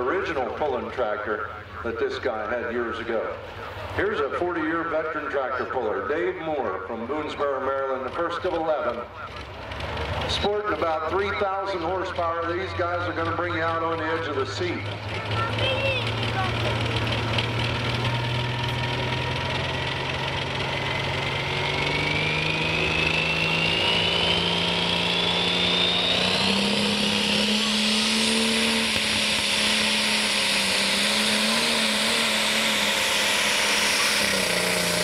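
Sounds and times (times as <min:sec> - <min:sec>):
diesel engine under load: 0:00.0 - 0:35.0
turbo whine: 0:10.3 - 0:35.0.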